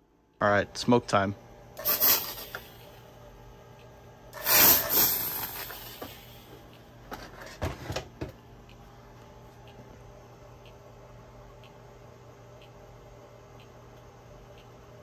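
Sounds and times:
fog machine hissing: 1.8s - 3.0s, 4.3s - 6.6s.

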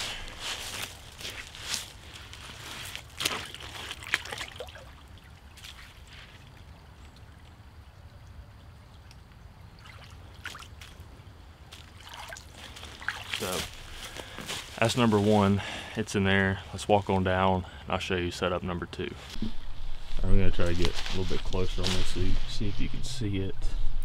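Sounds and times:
boots splashing through creek: 0.0s - 6.6s, 9.8s - 15.5s
trickling water: 0.0s - 14.4s.

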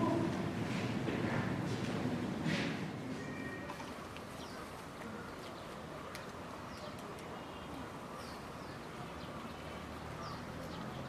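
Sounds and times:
outdoor background hum: 0.0s - 8.8s.

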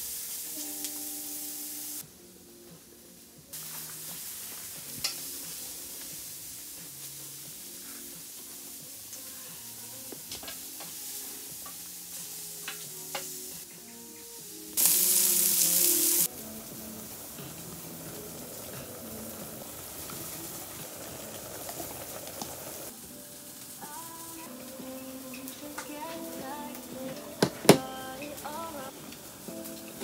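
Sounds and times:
loud hiss: 0.0s - 2.0s, 3.5s - 13.7s, 14.4s - 30.0s
food sizzling: 0.0s - 30.0s
soft background music: 0.0s - 30.0s.

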